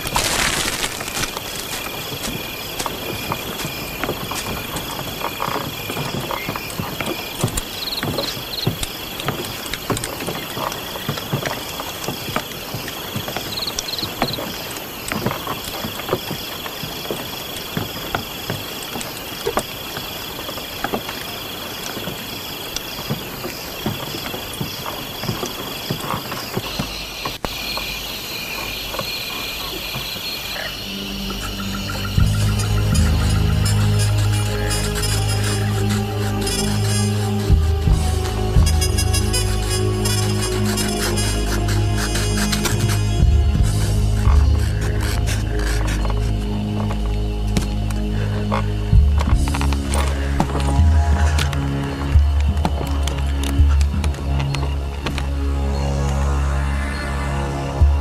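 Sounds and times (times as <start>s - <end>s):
frogs croaking: 0.0s - 58.0s
insects trilling: 0.0s - 58.0s.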